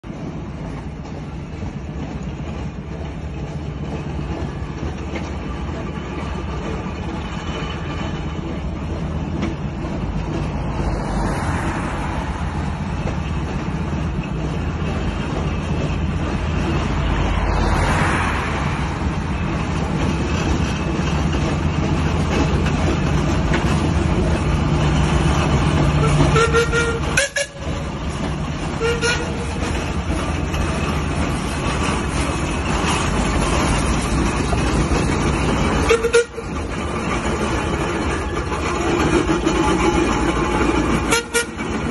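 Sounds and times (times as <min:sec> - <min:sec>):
steam engines rumbling: 0:00.0 - 0:41.9
cars passing: 0:09.7 - 0:41.9
steam whistle toots: 0:26.0 - 0:27.7, 0:28.8 - 0:29.4, 0:35.8 - 0:36.5, 0:41.1 - 0:41.6.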